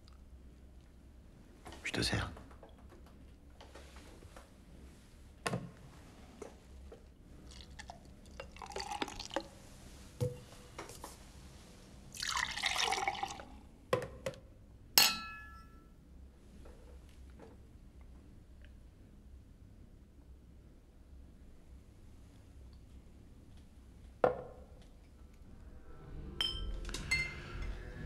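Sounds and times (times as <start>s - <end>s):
beer pouring into glasses: 7.4s - 9.6s, 12.1s - 13.6s
glasses clinking: 15.0s - 15.9s, 26.4s - 27.7s.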